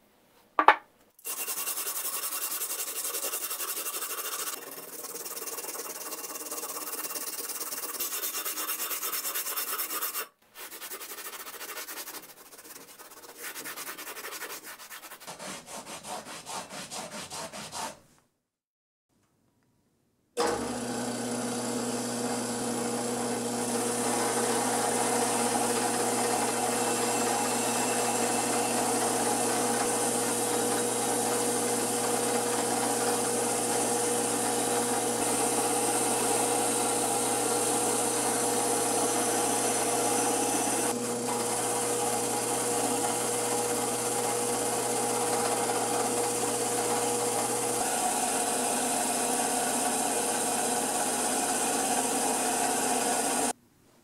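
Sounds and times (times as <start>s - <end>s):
wire brush scrubbing metal: 1.2s - 18.0s
drill press motor hum: 20.4s - 53.5s.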